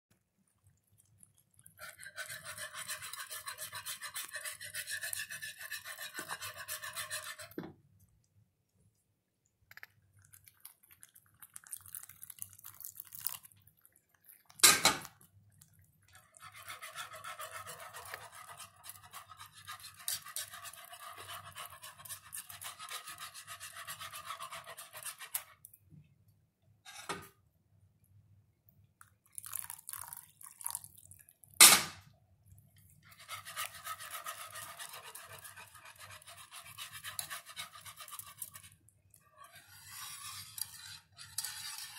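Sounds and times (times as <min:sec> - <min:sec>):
wire whisk scraping a skillet: 0:01.8 - 0:07.6, 0:16.2 - 0:25.6, 0:33.1 - 0:41.9
water pouring into gravy: 0:10.2 - 0:14.7, 0:29.2 - 0:31.5.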